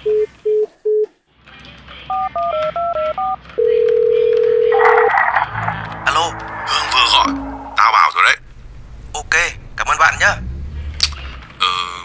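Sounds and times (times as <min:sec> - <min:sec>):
phone ringing tone: 0:02.2 - 0:05.1
burst of line noise: 0:04.8 - 0:08.8.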